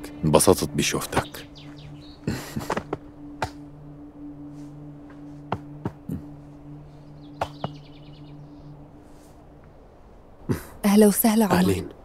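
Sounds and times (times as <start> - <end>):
bird trill: 0.0 - 9.5
low steady hum: 0.0 - 12.0.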